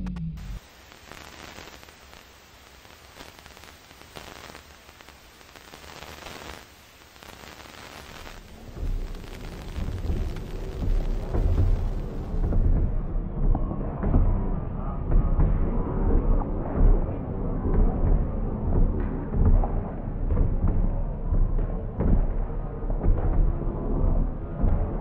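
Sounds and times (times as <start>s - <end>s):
steady hiss with crackles: 0.4s - 13.1s
loud low rumble: 8.4s - 25.0s.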